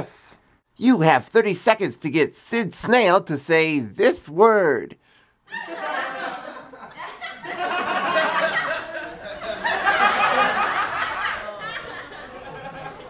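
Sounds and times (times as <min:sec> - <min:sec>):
audience laughing: 0:05.5 - 0:13.0.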